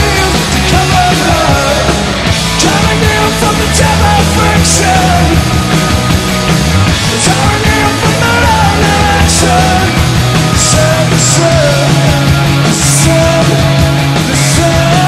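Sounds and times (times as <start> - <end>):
punk rock band playing live: 0.0 - 15.0.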